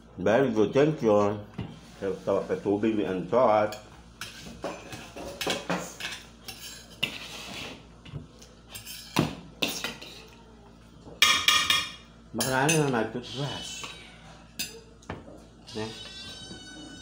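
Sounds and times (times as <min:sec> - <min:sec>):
cutlery clinking on plates: 0:03.7 - 0:07.6, 0:08.4 - 0:10.4.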